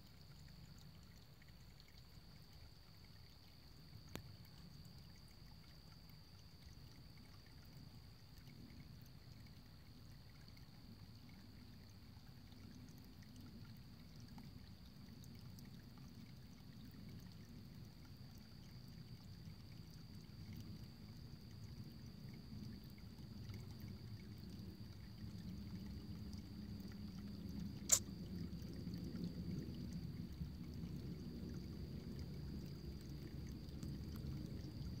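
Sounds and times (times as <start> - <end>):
water trickling: 0.0 - 35.0
sharp click: 27.9 - 28.1.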